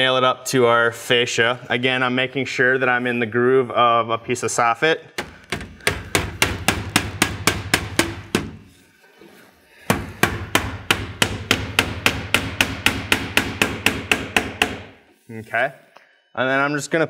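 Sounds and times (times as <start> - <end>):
hammer striking nails into metal: 5.2 - 8.6, 9.9 - 15.0.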